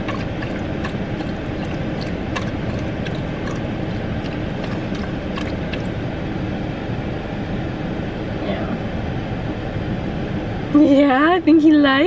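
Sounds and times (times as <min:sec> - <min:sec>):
dog lapping water: 0:00.0 - 0:06.0
car engine idling: 0:00.0 - 0:08.0.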